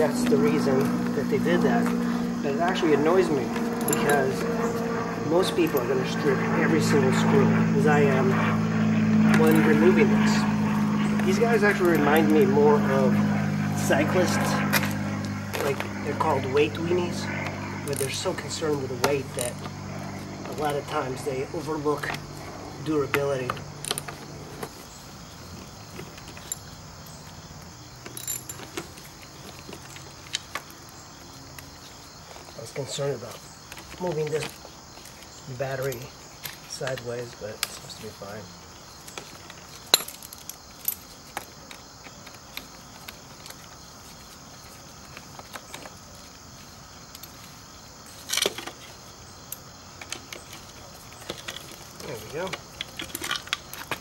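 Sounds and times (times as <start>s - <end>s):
rattling clatter: 0.1s - 4.9s.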